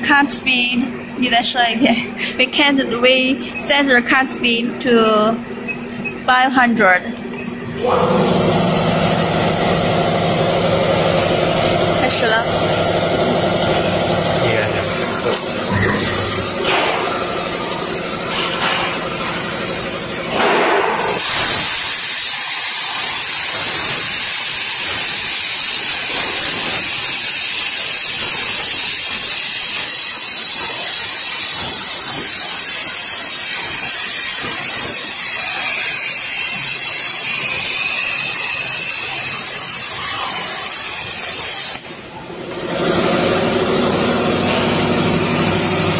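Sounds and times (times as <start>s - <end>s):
plasma torch hissing: 20.4s - 32.7s.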